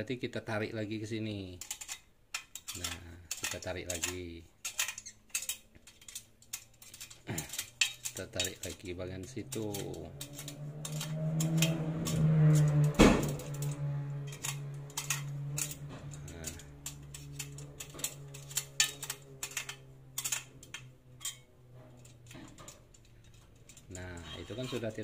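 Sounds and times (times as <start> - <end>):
spoke wrench clicking: 1.6 - 23.9.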